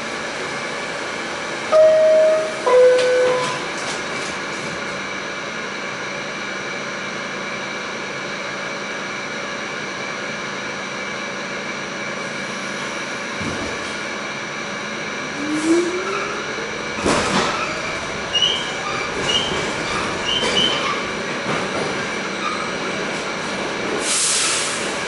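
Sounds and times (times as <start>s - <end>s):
two-note descending door chime: 1.7s - 3.7s
train doors sliding shut: 2.2s - 5.0s, 13.3s - 14.0s, 15.4s - 25.0s.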